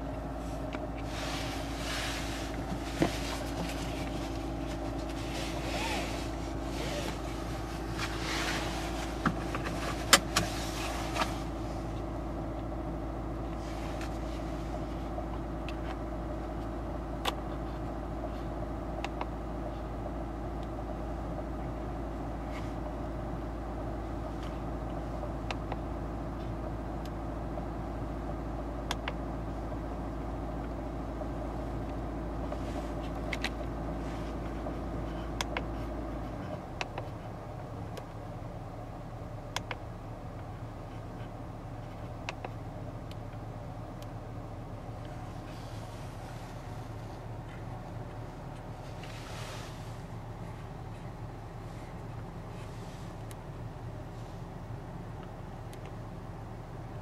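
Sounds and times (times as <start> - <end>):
car engine hum: 0.0 - 57.0
seatbelt rustling: 0.3 - 12.0, 45.0 - 53.5
seatbelt buckle clicks: 9.2 - 10.5.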